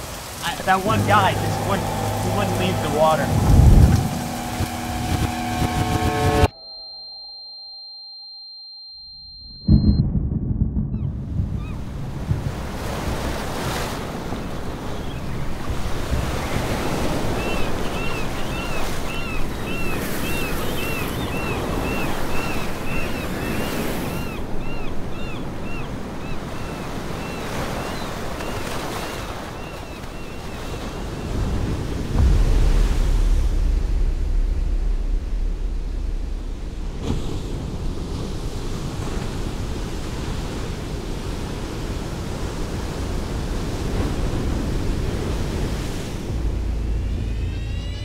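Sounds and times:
small waves breaking on shore: 0.0s - 5.5s, 12.3s - 33.5s
low wind rumble: 0.0s - 6.5s, 9.5s - 27.4s, 29.8s - 48.0s
wind on microphone: 0.8s - 6.5s, 9.7s - 29.0s, 30.4s - 48.0s.

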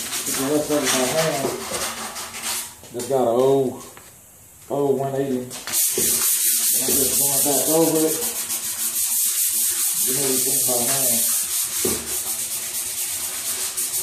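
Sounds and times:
sandpaper rubbing on metal: 0.0s - 2.7s, 5.7s - 14.0s.

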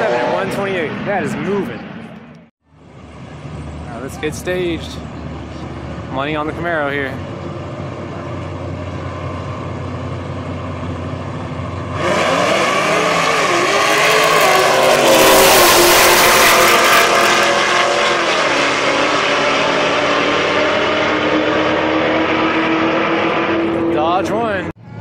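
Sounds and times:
cars accelerating at full throttle: 0.0s - 2.4s, 3.5s - 24.8s
cars idling: 2.7s - 25.0s.

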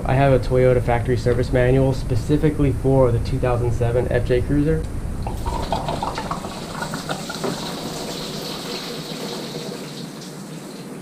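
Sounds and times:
coolant splashing into a bucket: 5.2s - 11.0s.

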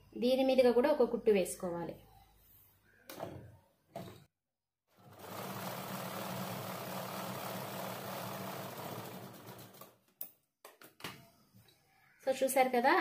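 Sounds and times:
sewing machine stitching: 4.9s - 10.0s.

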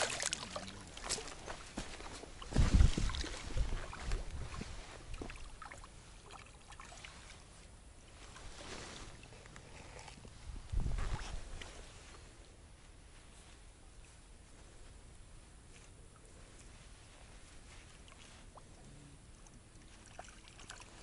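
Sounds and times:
rustling in dry reeds: 7.2s - 18.6s.

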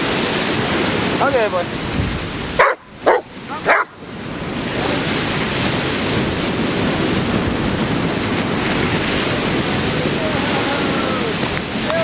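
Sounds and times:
ocean surf breaking: 0.0s - 12.0s
dog barking: 2.6s - 4.0s.

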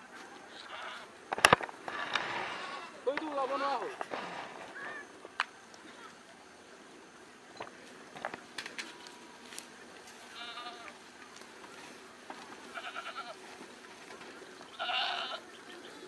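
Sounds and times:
goats bleating: 0.5s - 1.1s, 2.5s - 3.1s, 10.2s - 11.1s, 12.6s - 13.6s, 14.6s - 16.0s.

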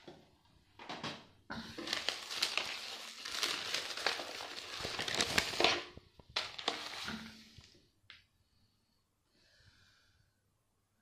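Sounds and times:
packaging crinkling: 1.7s - 7.4s.

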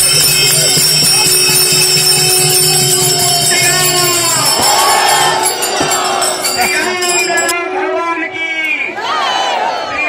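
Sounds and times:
hand drum beat: 0.0s - 7.5s
small hand cymbals jingling: 0.0s - 7.5s
held tone: 0.0s - 7.6s
crowd shouting: 0.0s - 8.0s, 8.8s - 10.0s.

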